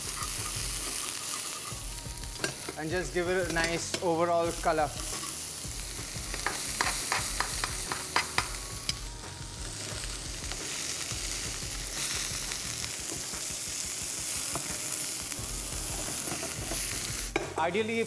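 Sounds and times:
meat sizzling in a frying pan: 0.0s - 18.0s
tongs clicking against pan: 6.3s - 9.0s.

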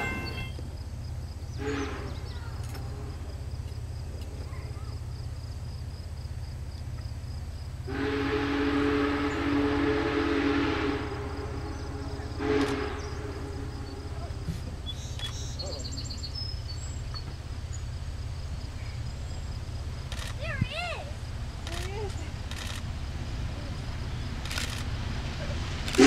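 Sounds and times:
distant steam whistle: 1.5s - 3.3s, 7.9s - 15.6s.

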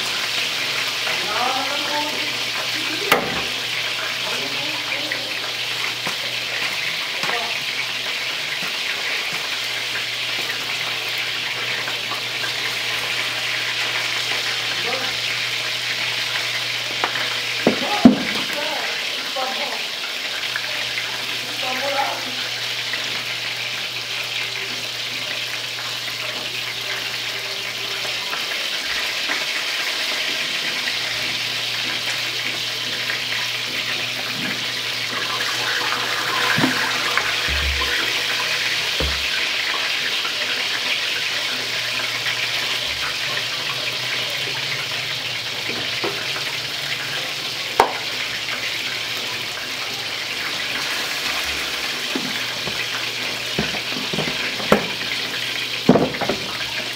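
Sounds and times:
soup simmering in a pot: 22.4s - 56.9s.

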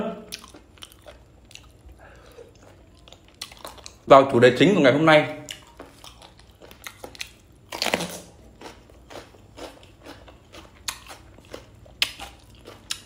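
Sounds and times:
chewing with wet mouth clicks: 0.3s - 4.0s, 5.4s - 13.0s
crunchy biting into pepper: 5.6s - 13.0s.

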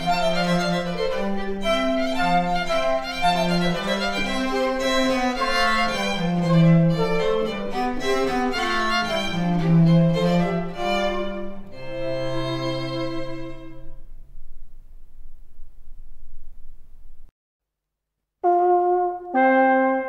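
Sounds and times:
violin melody: 0.0s - 14.2s, 18.4s - 20.0s
low sustained bowed strings: 0.0s - 17.3s.

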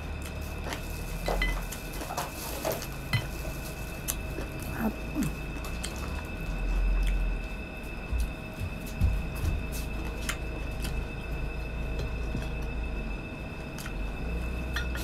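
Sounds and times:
dull low rumble: 2.7s - 15.0s
wet chewing: 7.0s - 7.3s.

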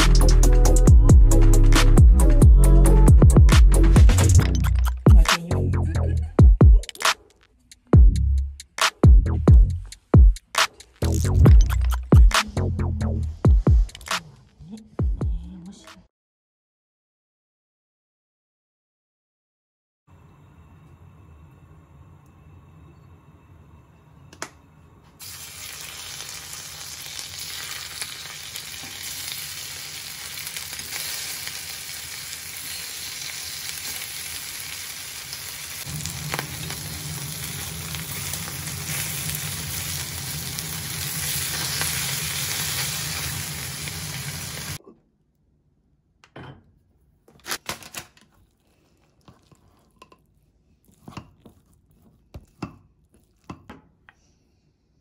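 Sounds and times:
fish sizzling in oil: 25.2s - 44.8s.

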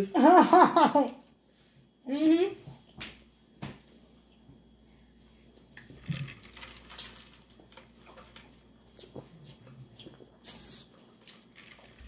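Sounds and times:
chewing and wet mouth noises: 7.7s - 12.0s.

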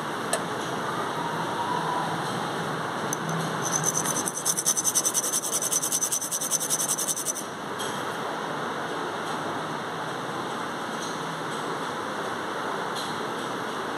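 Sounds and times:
gemstone scraping on abrasive stone: 3.2s - 7.5s.

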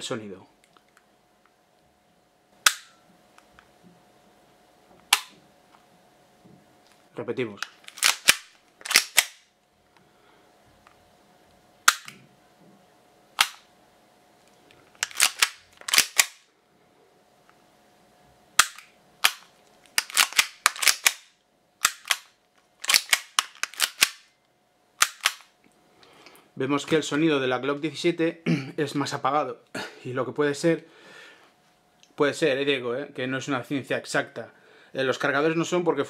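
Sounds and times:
pistol dry-fire clicks: 2.6s - 3.0s, 7.6s - 9.5s, 11.9s - 12.2s, 13.4s - 13.7s, 15.0s - 16.4s, 18.6s - 24.3s, 25.0s - 25.5s.

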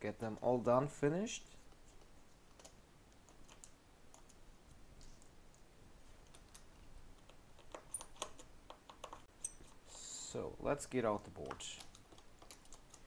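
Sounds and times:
fingertips tapping phone parts: 6.2s - 9.8s, 11.4s - 13.0s.

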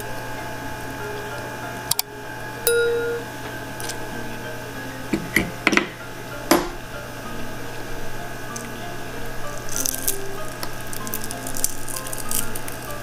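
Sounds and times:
chewing noodles: 9.4s - 13.0s.

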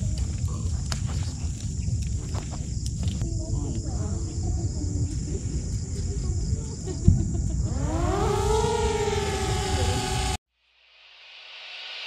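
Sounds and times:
low rumble of wind: 0.0s - 10.4s
drone motors whining: 6.4s - 10.4s.

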